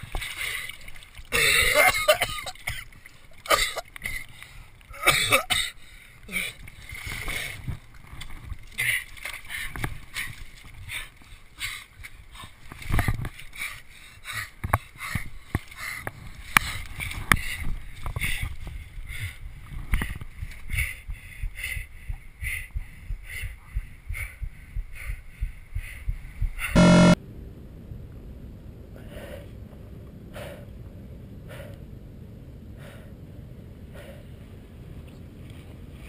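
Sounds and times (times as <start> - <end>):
low rumble: 21.0 - 35.4.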